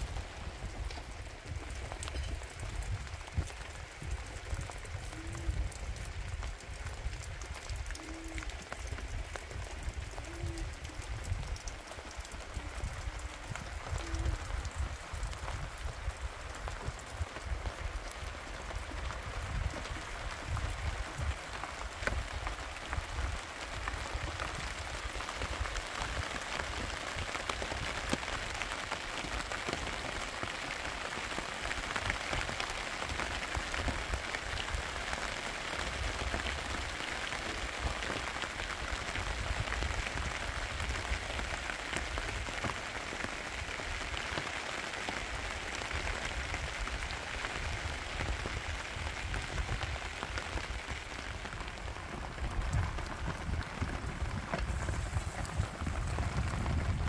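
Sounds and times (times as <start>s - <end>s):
rain on plastic sheeting: 0.0s - 57.0s.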